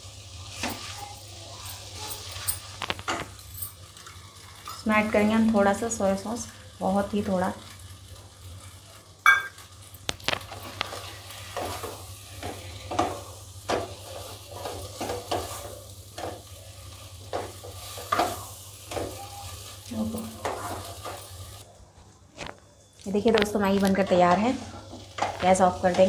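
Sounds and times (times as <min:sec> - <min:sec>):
light sizzle: 0:00.0 - 0:26.0
spatula scraping wok: 0:10.4 - 0:21.6.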